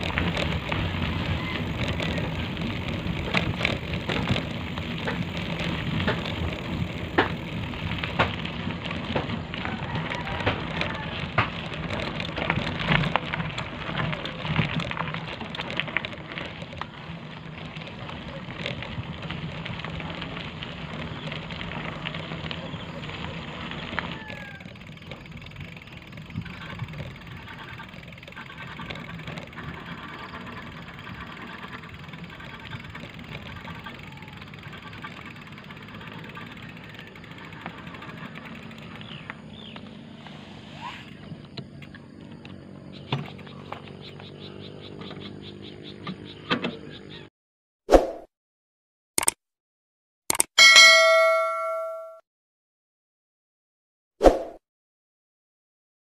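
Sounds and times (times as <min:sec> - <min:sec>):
bicycle frame rattling: 0:00.0 - 0:39.8
bicycle tyres on gravel: 0:00.0 - 0:47.2.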